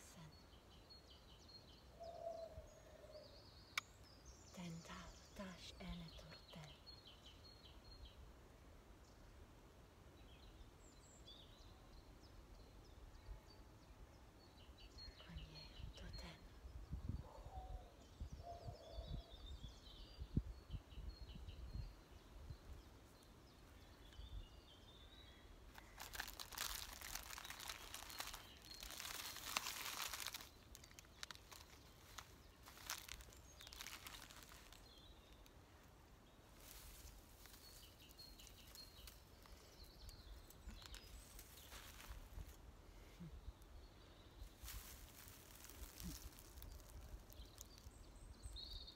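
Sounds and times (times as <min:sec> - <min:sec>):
faint birds chirping: 0:00.0 - 0:48.9
rustling handling noise: 0:25.7 - 0:35.5, 0:36.5 - 0:39.5, 0:40.7 - 0:42.6, 0:44.5 - 0:47.9.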